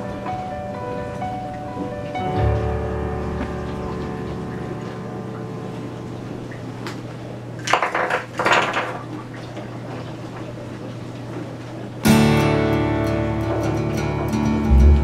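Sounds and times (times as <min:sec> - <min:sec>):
steady low hum: 0:00.0 - 0:07.7
items clattering on kitchen counter: 0:07.6 - 0:09.2.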